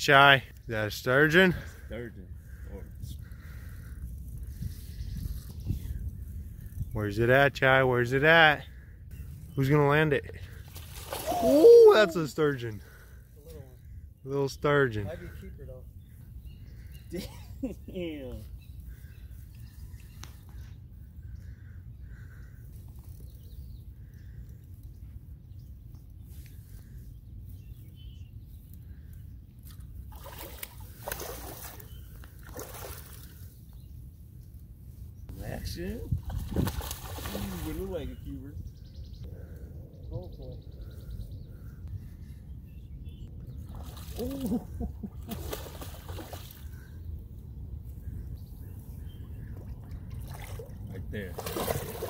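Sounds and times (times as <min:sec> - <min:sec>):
wind rumble on microphone: 0:02.2 - 0:07.3, 0:33.3 - 0:52.0
fish splashing and thrashing: 0:10.5 - 0:11.6, 0:29.7 - 0:33.4, 0:36.2 - 0:37.8, 0:43.6 - 0:46.8, 0:49.7 - 0:52.0.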